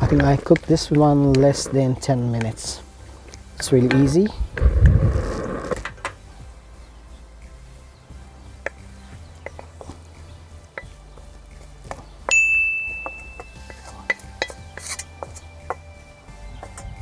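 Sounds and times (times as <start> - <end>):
pan and spatula scraping a bowl: 13.7 - 15.6.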